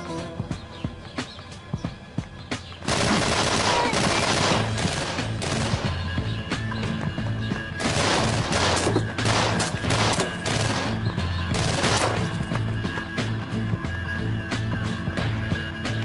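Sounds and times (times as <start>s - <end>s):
background music with low pulse: 0.0s - 16.0s
rapid gunfire: 2.8s - 6.2s, 7.8s - 12.5s.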